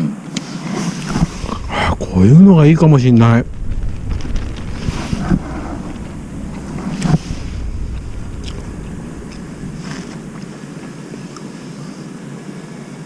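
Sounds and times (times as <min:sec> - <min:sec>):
wind buffeting microphone: 0:01.0 - 0:11.4.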